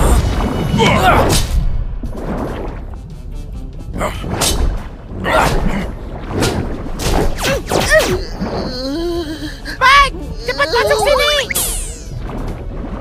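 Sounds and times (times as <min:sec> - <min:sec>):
cartoon whooshes and hits: 0:11.4 - 0:12.2.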